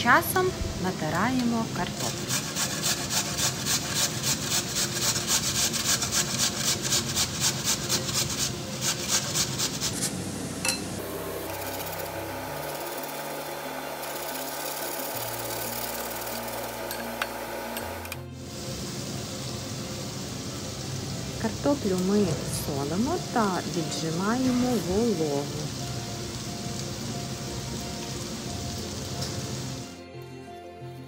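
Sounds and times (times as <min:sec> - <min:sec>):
soft background music: 0:00.0 - 0:31.0
potato rasping on metal grater: 0:02.0 - 0:10.1.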